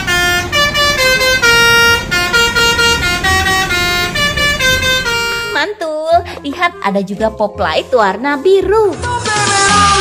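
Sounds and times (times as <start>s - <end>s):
horn-like instrumental melody: 0.0s - 5.8s.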